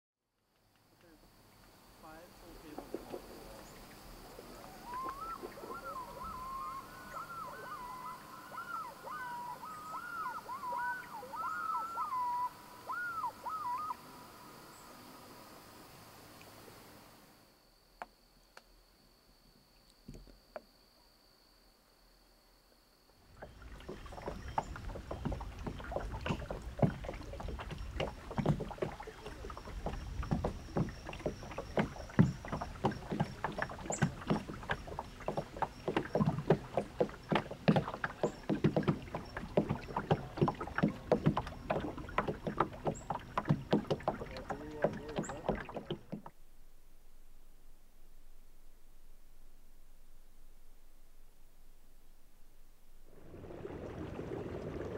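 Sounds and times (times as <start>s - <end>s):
water splashing against boat hull: 2.1s - 12.4s, 23.3s - 46.4s, 53.0s - 54.9s.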